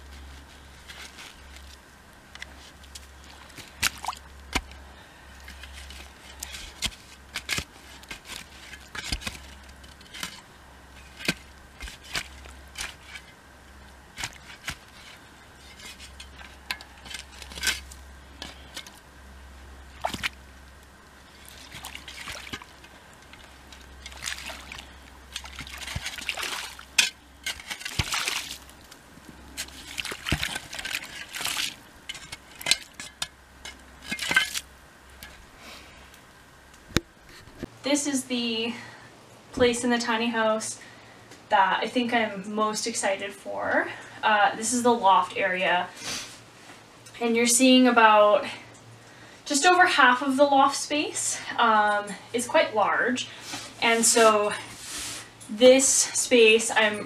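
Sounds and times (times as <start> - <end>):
shovel chopping and scraping soil: 3.6 - 4.8, 5.5 - 10.4, 11.0 - 13.4, 14.1 - 19.0, 24.0 - 28.7, 29.6 - 35.4
shovel scooping and splashing: 20.0 - 20.4, 21.3 - 22.8, 23.4 - 28.7, 29.6 - 33.3
water trickling: 21.2 - 29.0.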